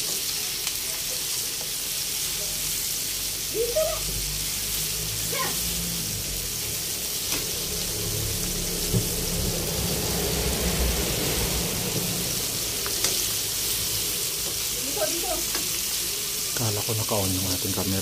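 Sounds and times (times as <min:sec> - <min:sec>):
oil sizzling: 0:00.0 - 0:18.0.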